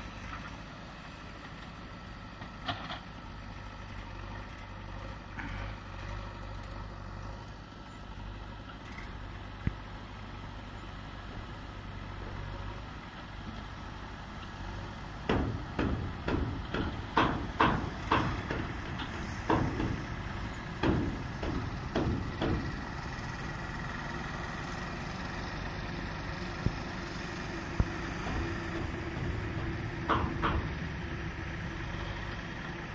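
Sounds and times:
vehicle engines running: 0.0s - 32.9s
sharp irregular knocks and clanks: 2.4s - 3.1s, 15.2s - 20.1s, 20.8s - 22.8s, 28.2s - 30.9s.

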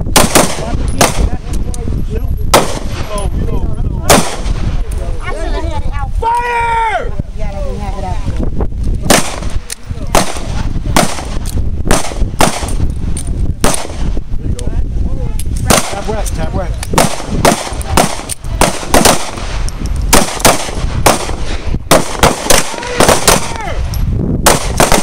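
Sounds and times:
pistol shots: 0.1s - 1.4s, 2.5s - 3.1s, 4.0s - 4.6s, 9.1s - 12.8s, 13.6s - 14.1s, 15.7s - 16.1s, 16.9s - 23.6s, 24.4s - 25.0s.

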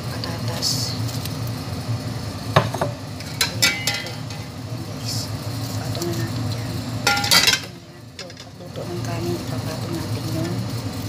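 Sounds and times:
steady low hum: 0.0s - 11.0s
metal utensil clinking on pot: 3.2s - 4.5s, 7.0s - 8.6s.

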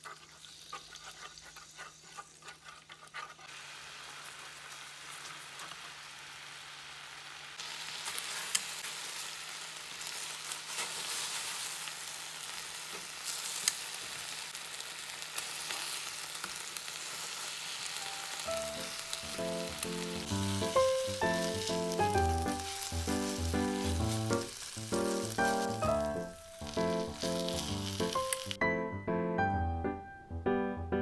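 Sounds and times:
wooden spatula stirring: 0.0s - 3.6s, 19.6s - 28.2s
sauce sizzling in a pan: 0.0s - 28.6s.

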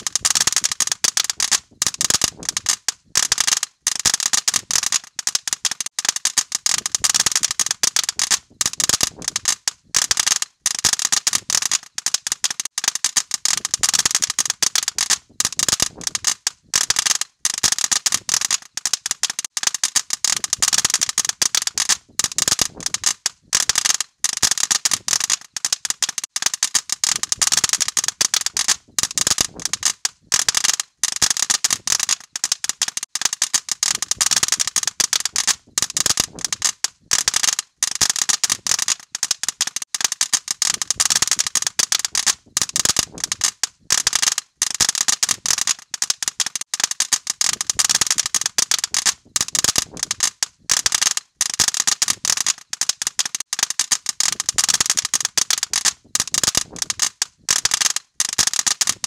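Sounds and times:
fireworks crackling: 0.0s - 30.8s, 31.4s - 37.3s.

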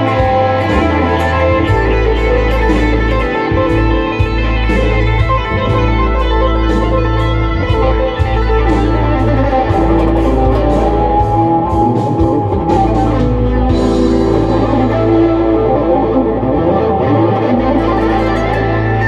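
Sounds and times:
bass: 0.0s - 19.0s
electric lead guitar: 0.0s - 19.0s
drum beat: 7.7s - 15.2s.

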